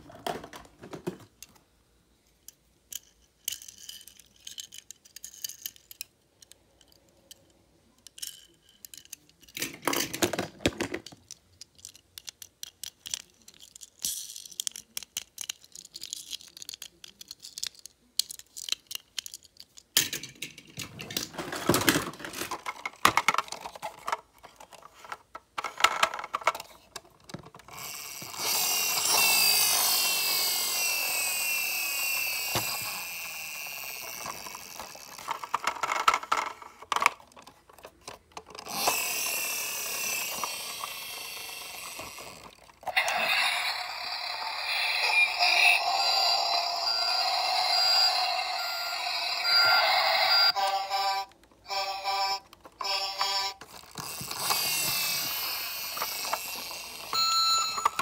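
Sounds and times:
toy cars clattering: 2.4 - 58.0
toy vehicle whir: 11.2 - 19.4, 21.1 - 58.0.

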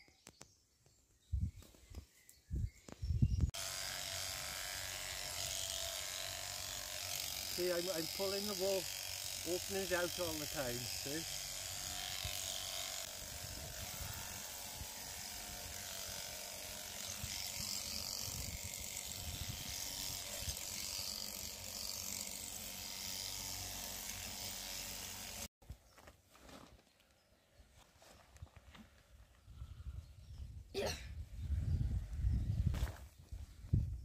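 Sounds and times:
electric clippers buzzing: 3.6 - 25.5.

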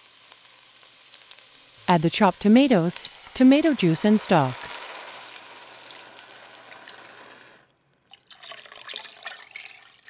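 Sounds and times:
liquid pouring into a pot: 4.6 - 10.0.

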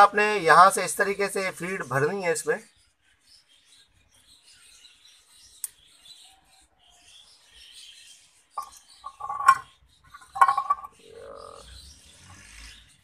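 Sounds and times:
syringe and spoon clinking on glass: 8.6 - 11.0.

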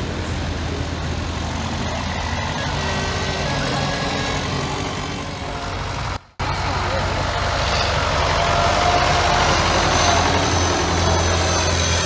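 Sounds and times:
tractor engines running: 0.0 - 12.0.

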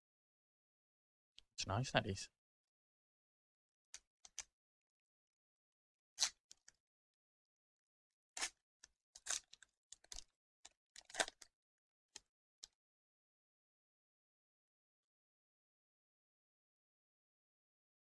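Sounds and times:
foil wrapper crinkling and tearing: 9.2 - 10.3, 11.0 - 11.4.

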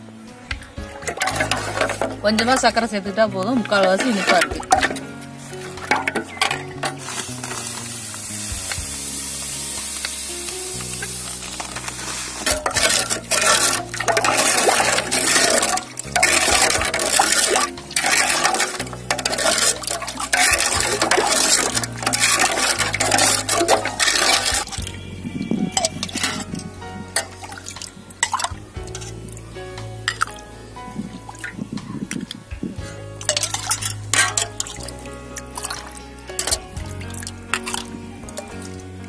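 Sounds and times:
liquid swishing and sloshing: 0.8 - 2.8, 3.6 - 8.0, 11.0 - 29.4, 30.1 - 38.8
ladle clicking against pot: 1.0 - 2.8, 3.6 - 5.1, 11.7 - 24.8, 33.2 - 38.8.

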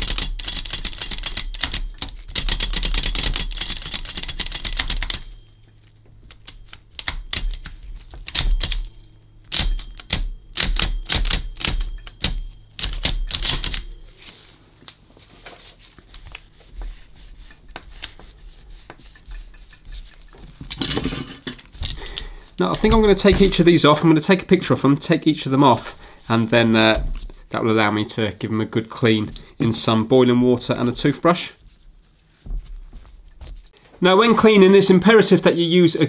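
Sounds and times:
mechanical calculator clattering: 0.0 - 5.5, 6.3 - 14.0.

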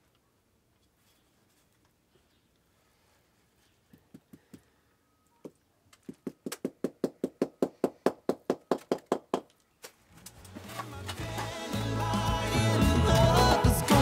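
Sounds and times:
music: 10.3 - 14.0.

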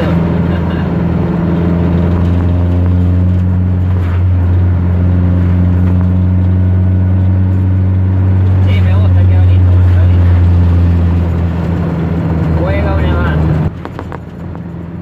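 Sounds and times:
car engine drone from cabin: 0.0 - 15.0.

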